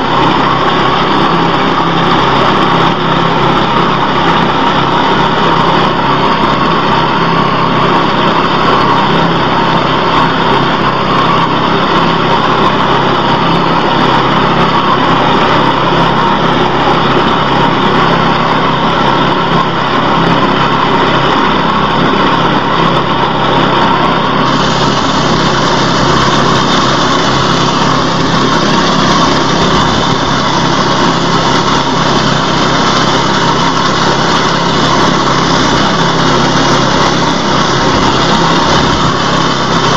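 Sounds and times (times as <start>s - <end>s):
small reaper engine running: 0.0s - 39.9s
bright hiss: 24.4s - 39.9s.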